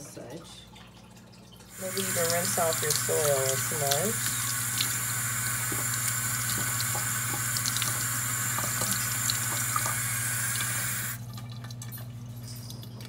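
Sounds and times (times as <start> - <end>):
water running from faucet: 1.6 - 13.0
tap shutting off: 1.9 - 11.2.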